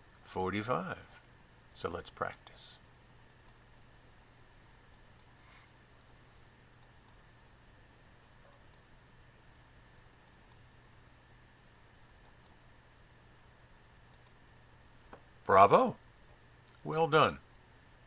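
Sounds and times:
low steady hum: 0:00.0 - 0:18.0
computer mouse clicks: 0:03.3 - 0:03.6, 0:08.5 - 0:08.9, 0:12.2 - 0:12.6, 0:14.1 - 0:14.4.

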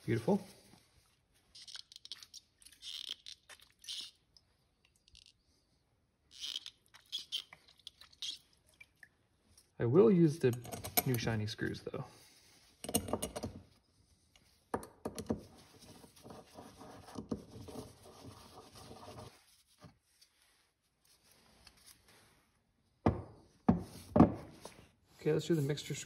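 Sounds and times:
metal parts clicking and knocking: 0:10.5 - 0:11.3.

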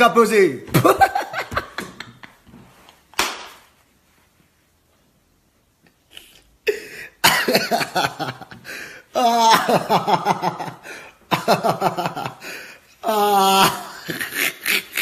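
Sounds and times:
man laughing: 0:00.7 - 0:02.4, 0:06.7 - 0:15.0.

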